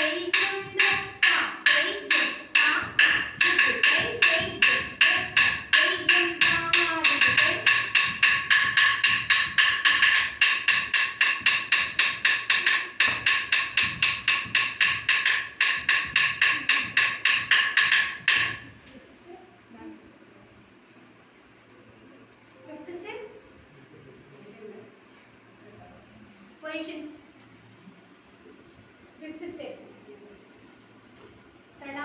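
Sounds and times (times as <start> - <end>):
fast ringing percussion beat: 0.0 - 19.0.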